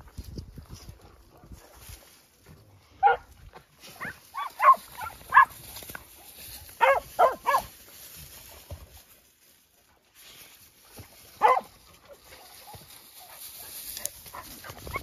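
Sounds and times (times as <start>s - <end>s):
dog yelping barks: 3.0s - 3.3s, 4.0s - 5.6s, 6.8s - 7.7s, 11.4s - 11.7s.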